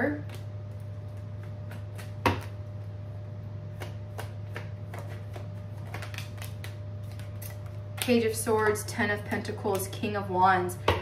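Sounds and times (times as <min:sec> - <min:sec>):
cards shuffling with soft clicks: 0:04.5 - 0:08.1.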